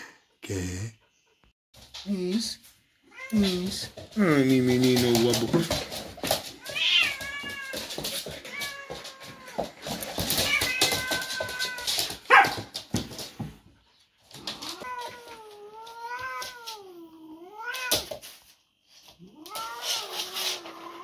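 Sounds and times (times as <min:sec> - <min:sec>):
paws scuffling on wooden floor: 0:01.8 - 0:16.9.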